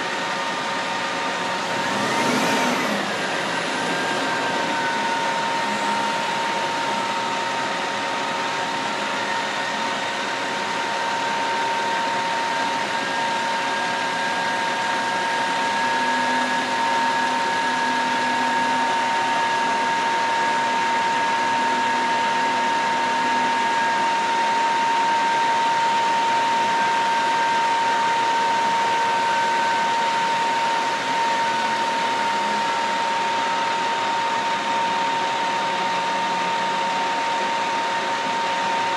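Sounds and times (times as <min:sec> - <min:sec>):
heavy trucks idling: 0:00.0 - 0:14.0
high-pitched whine: 0:00.0 - 0:38.9.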